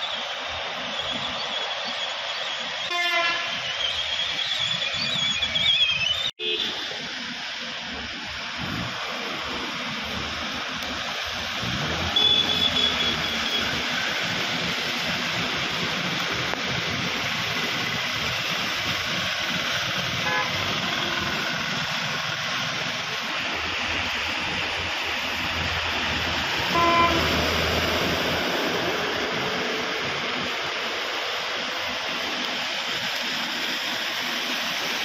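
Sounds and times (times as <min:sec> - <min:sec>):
traffic splashing through water: 0:00.0 - 0:35.0
vehicle horn honking: 0:02.9 - 0:03.5, 0:12.1 - 0:13.6, 0:20.2 - 0:21.1, 0:26.7 - 0:27.4
heavy rain hiss: 0:06.5 - 0:35.0.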